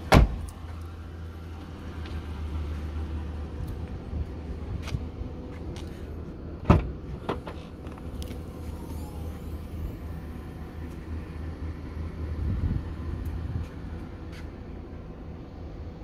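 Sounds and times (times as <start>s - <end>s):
tailgate clunks opening: 6.6s - 7.6s.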